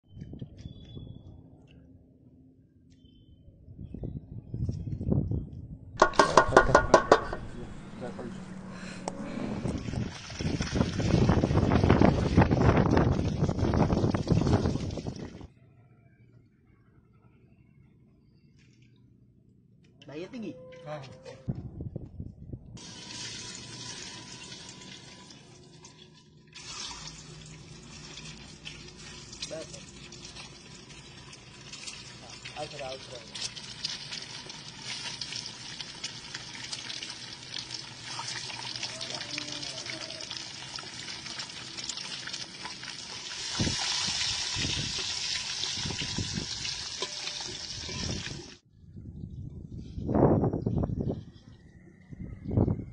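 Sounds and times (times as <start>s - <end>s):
eggs sizzling in hot oil: 22.8s - 48.6s.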